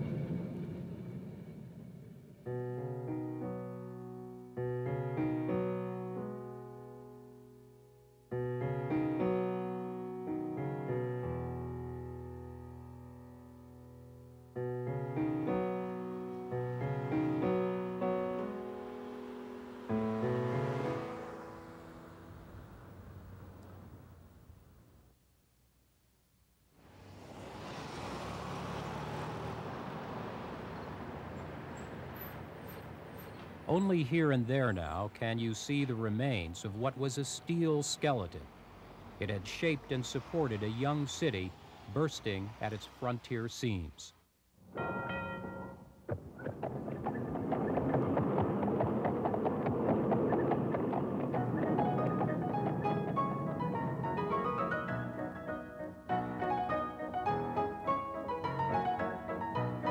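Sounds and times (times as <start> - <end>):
slow solo piano music: 2.5 - 22.5, 51.2 - 59.9
car driving away: 8.6 - 25.1, 26.8 - 43.0, 46.0 - 59.9.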